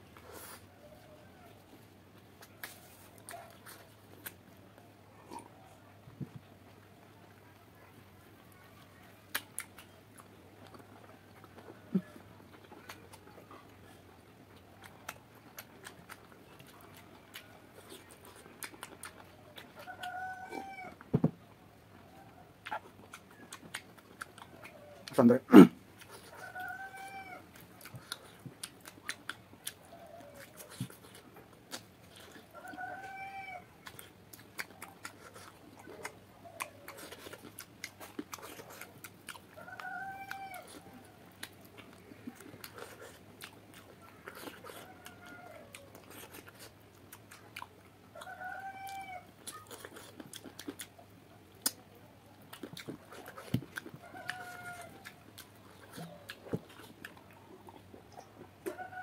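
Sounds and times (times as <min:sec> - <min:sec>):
wet chewing and lip-smacking: 0:00.0 - 0:05.6, 0:06.2 - 0:21.0, 0:22.0 - 0:59.0
domestic animal calling: 0:19.8 - 0:21.0, 0:24.5 - 0:27.6, 0:32.5 - 0:33.9, 0:39.6 - 0:41.2, 0:48.2 - 0:49.7.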